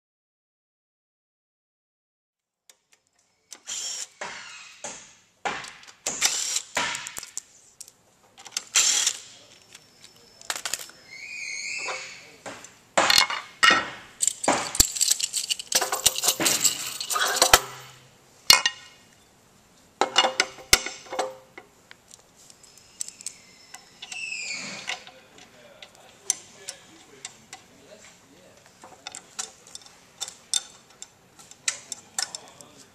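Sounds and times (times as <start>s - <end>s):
short squeaks: 8.8s - 12.4s, 22.6s - 25.3s
metal clinking and rattling: 13.1s - 19.0s, 20.0s - 24.2s, 28.8s - 32.7s.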